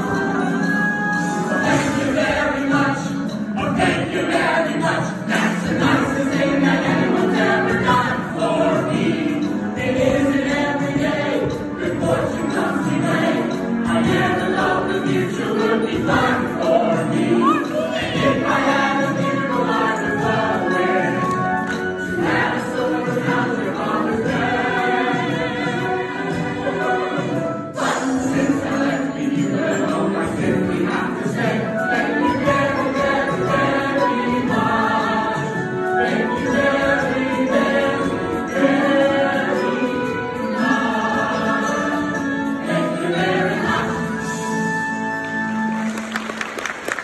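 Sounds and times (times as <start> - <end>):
musical accompaniment: 0.0 - 47.0.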